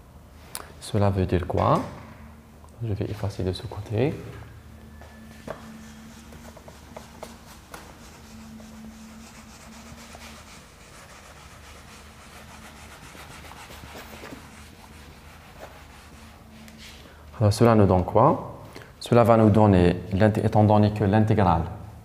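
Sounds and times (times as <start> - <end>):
eraser wiping whiteboard: 5.4 - 17.0.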